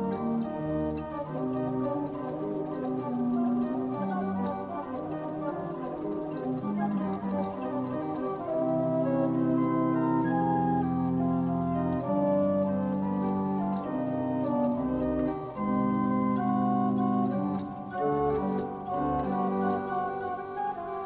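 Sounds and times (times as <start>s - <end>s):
barrel organ playing chords: 0.0s - 21.0s.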